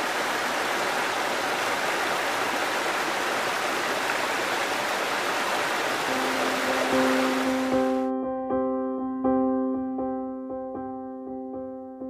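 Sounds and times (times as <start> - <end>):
water rushing over rocks: 0.0 - 8.1.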